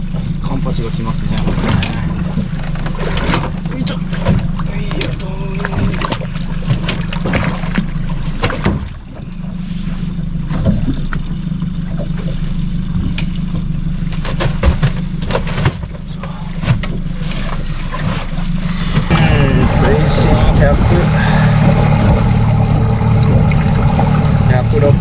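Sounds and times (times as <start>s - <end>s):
boat engine idling: 0.0s - 25.0s
knocks and clatter on board: 1.3s - 5.2s, 5.8s - 9.0s, 14.1s - 18.3s.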